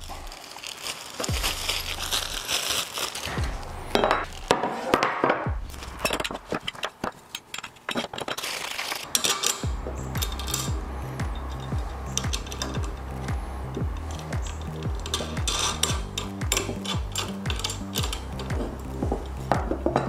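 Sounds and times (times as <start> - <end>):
plastic bag rustling: 0.0 - 19.9
metal tubes clinking on wood: 3.9 - 4.6, 5.8 - 20.0.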